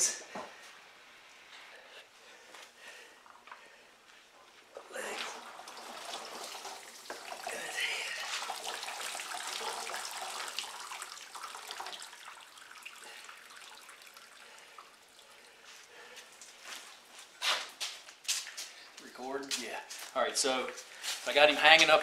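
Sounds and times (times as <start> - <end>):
water streaming off feathers: 5.0 - 16.6
water sloshing and splashing: 5.0 - 17.2.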